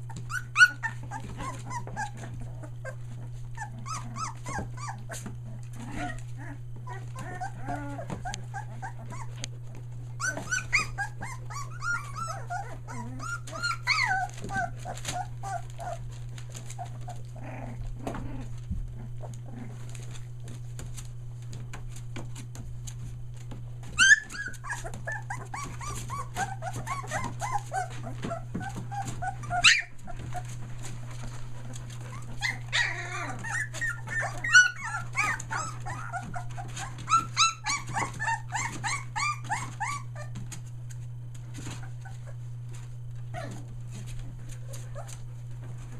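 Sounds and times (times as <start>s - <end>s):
puppy yelps: 0.0s - 3.0s, 3.6s - 5.2s, 5.9s - 9.4s, 10.2s - 16.0s, 23.9s - 30.5s, 32.1s - 40.3s
puppies whining and squealing: 0.0s - 20.6s, 23.4s - 45.9s
steady low hum: 0.0s - 45.9s.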